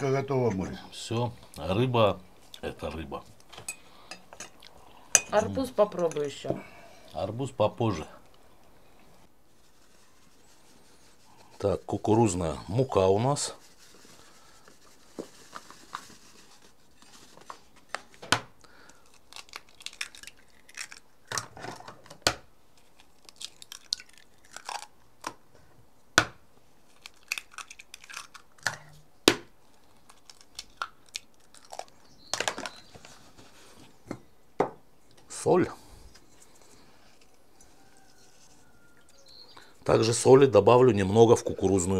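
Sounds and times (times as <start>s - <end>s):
eggs cracking: 18.6s - 25.5s, 26.2s - 33.0s.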